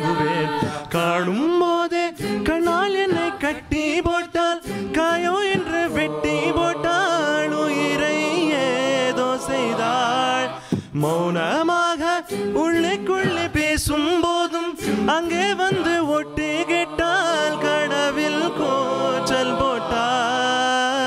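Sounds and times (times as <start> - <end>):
beatboxed percussion hits: 0.0 - 7.0, 10.6 - 17.4
a cappella group singing harmony: 0.0 - 21.0.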